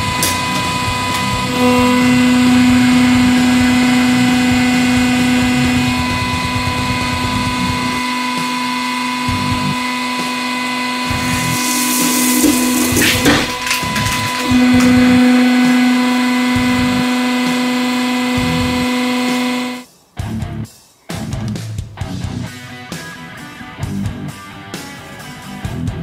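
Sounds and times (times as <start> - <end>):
hydraulic pump motor humming: 0.0 - 19.8
blade cracking through rods: 11.3 - 14.9.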